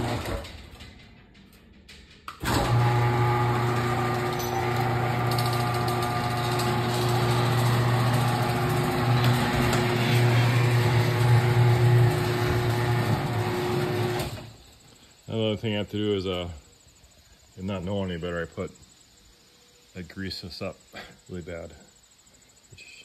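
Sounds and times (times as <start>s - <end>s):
garage door opener humming: 0.0s - 14.6s.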